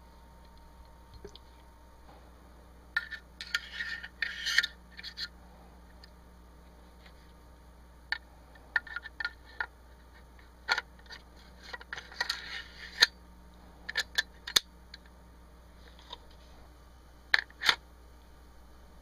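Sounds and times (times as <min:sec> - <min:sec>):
metal scraping: 0:03.0 - 0:05.4.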